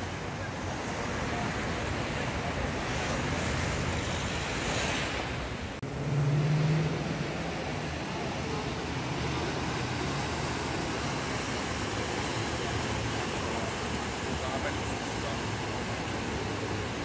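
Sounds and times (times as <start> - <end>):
city road traffic with cars passing: 0.0 - 17.0.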